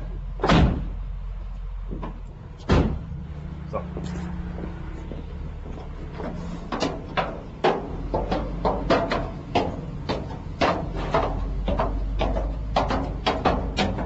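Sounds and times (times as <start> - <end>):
footsteps climbing stairs: 3.8 - 14.0.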